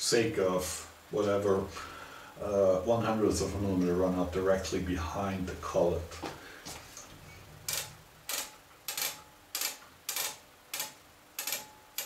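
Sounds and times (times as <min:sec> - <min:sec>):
ratchet clicking: 0:07.7 - 0:12.0.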